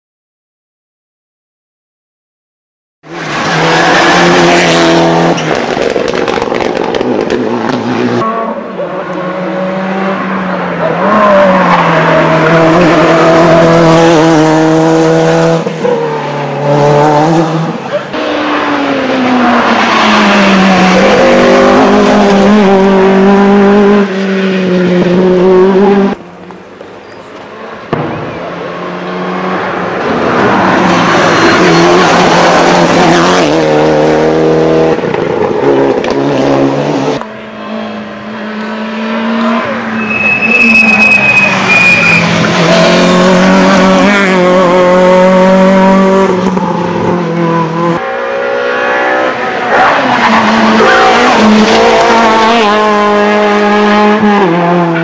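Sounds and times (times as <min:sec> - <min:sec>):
rally car engines revving: 0:03.1 - 0:55.0.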